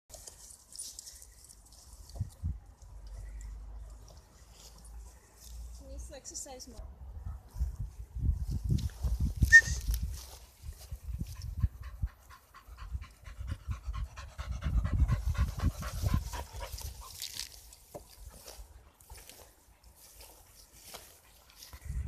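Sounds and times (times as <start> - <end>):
dog panting: 11.1 - 17.2.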